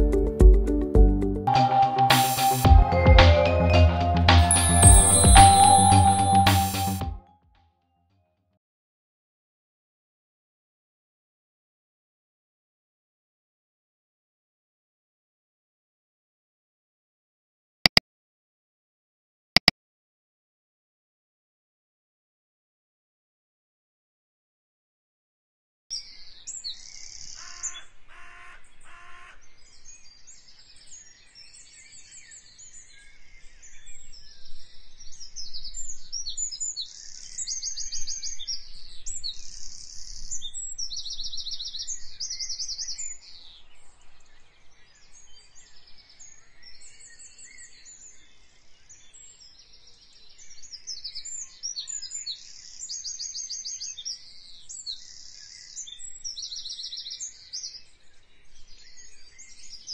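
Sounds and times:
short tones: 0:01.5 - 0:07.2
small birds chirping and trilling: 0:25.9 - 0:59.9.

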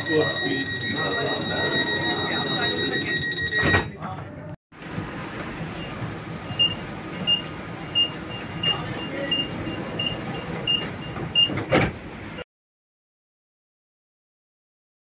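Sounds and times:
door warning beeps: 0:00.0 - 0:04.0, 0:05.8 - 0:11.8
train doors sliding shut: 0:09.5 - 0:12.4.

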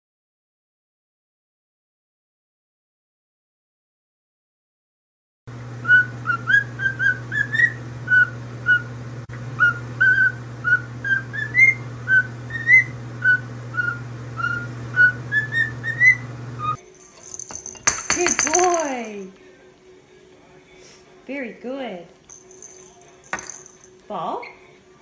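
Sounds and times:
cockatiel whistling a tune: 0:05.8 - 0:08.9, 0:09.6 - 0:16.2.

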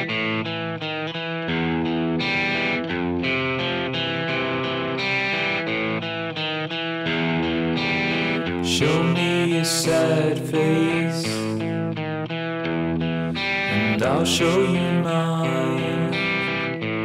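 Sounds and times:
sustained instrumental chords: 0:07.0 - 0:17.0.

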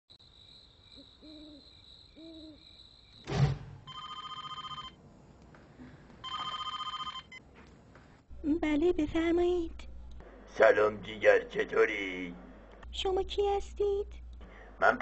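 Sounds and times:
low hoots: 0:01.0 - 0:02.8
loud thump: 0:03.2 - 0:03.9
telephone ringing: 0:03.8 - 0:05.0, 0:06.2 - 0:07.4.

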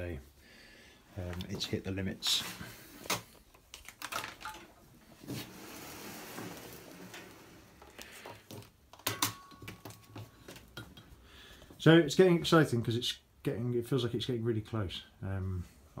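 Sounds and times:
rustling: 0:01.2 - 0:08.8
handling clicks and knocks: 0:07.9 - 0:11.1.

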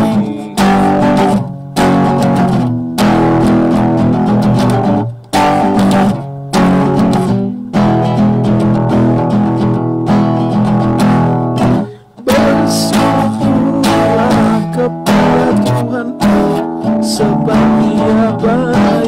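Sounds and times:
guitar strumming chords: 0:00.0 - 0:19.0.

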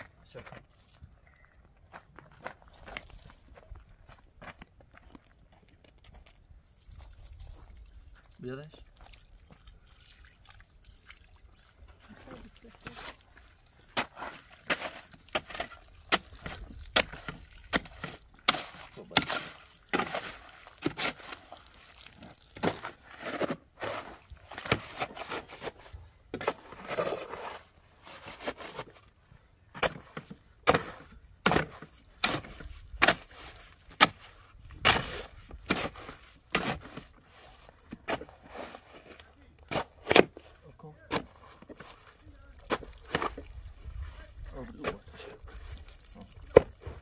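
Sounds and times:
shovel scraping wet cement: 0:11.9 - 0:29.2, 0:29.8 - 0:47.0.

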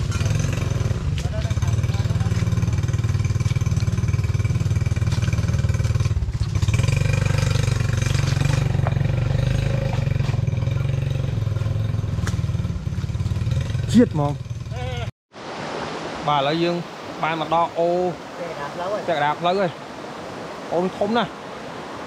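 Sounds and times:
engine running: 0:00.0 - 0:15.1.

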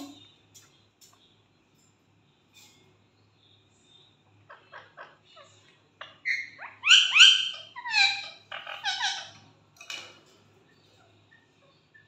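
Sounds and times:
parakeet whistled squawks: 0:06.2 - 0:09.3.

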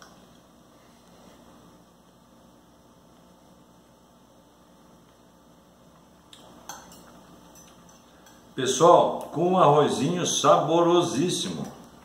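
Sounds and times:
low room hum: 0:00.0 - 0:12.0
fork and knife clinking on plate: 0:06.6 - 0:08.4.

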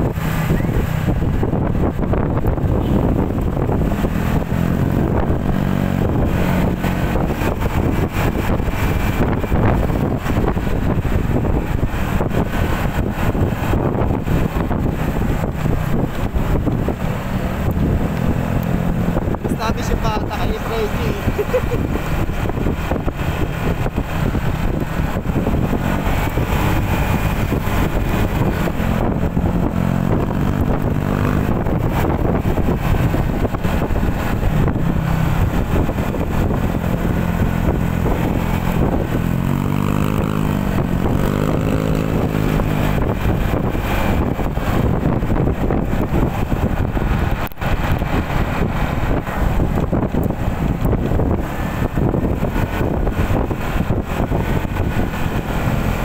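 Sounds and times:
motorcycle engine cruising: 0:00.0 - 0:56.0
wind rushing over microphone: 0:00.0 - 0:56.0.

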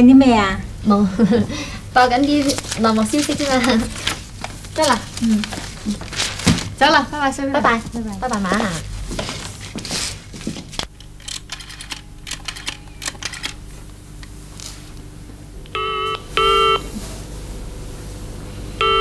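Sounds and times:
telephone ringing tone: 0:15.7 - 0:17.0, 0:18.8 - 0:19.0.

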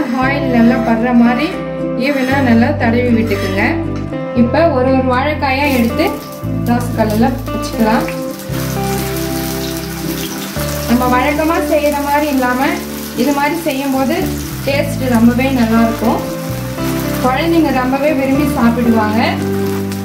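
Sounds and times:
oil sizzling: 0:05.4 - 0:20.0.

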